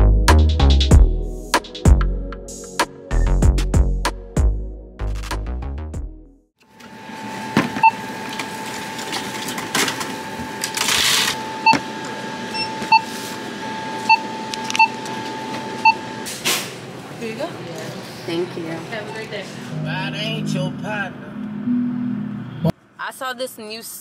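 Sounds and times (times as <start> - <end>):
short equipment beeps: 12.5 - 13.1.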